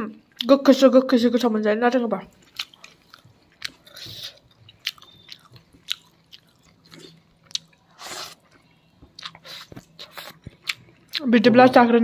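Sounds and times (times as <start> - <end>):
person chewing food: 2.3 - 11.2.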